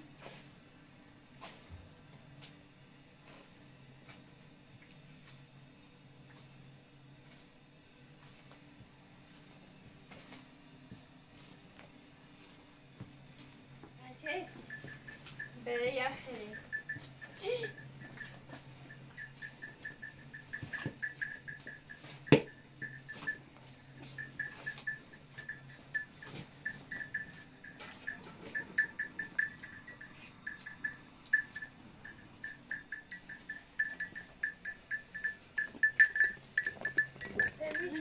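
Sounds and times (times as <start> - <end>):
livestock bells clinking: 14.1 - 38.0.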